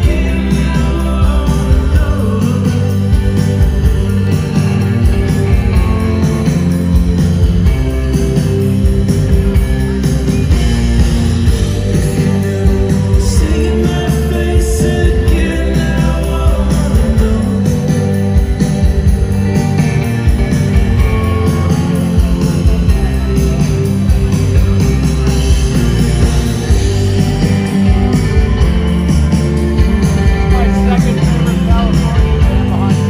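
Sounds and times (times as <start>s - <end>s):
live rock band playing: 0.0s - 33.0s.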